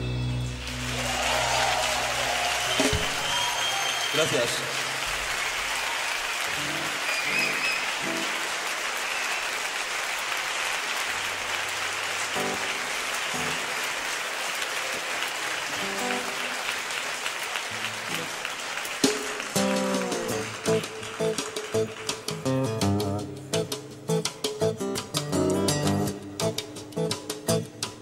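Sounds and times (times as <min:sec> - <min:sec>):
audience applauding: 0:00.6 - 0:23.2
plucked acoustic instrument notes: 0:19.6 - 0:28.0.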